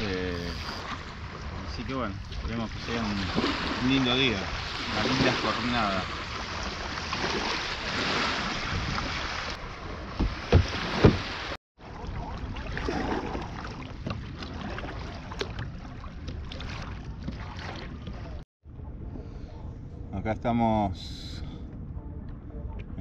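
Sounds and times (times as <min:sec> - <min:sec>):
small waves washing on shore: 0:00.0 - 0:18.4
water sloshing against kayak hull: 0:00.0 - 0:18.4
wind on microphone: 0:00.0 - 0:20.1.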